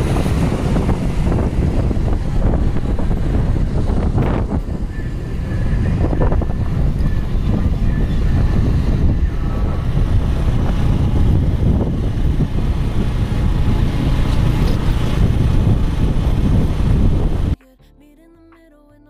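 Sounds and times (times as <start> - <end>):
vehicle road rumble: 0.0 - 17.6
wind buffeting microphone: 0.0 - 17.6
quiet music: 17.6 - 19.0.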